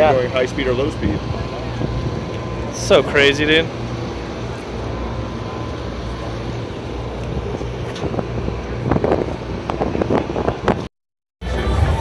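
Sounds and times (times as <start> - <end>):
low mechanical hum: 0.0 - 12.0
outdoor background noise: 0.0 - 12.0.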